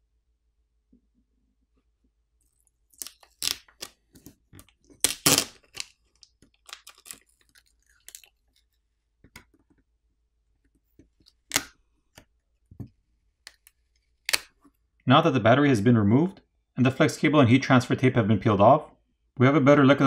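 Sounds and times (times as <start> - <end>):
tape peeling and crackling: 2.4 - 9.7, 10.7 - 12.3, 13.4 - 14.7.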